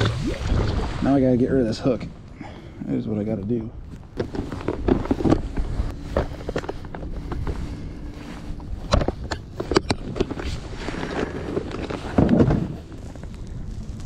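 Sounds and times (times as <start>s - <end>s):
wind noise on microphone: 3.8s - 14.0s.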